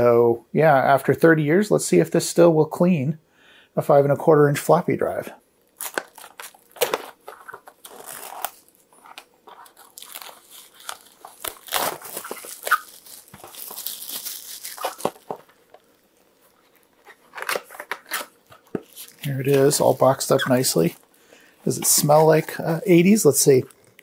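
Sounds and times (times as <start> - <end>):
plastic shrink-wrap tearing and crinkling: 5.7 - 24.0.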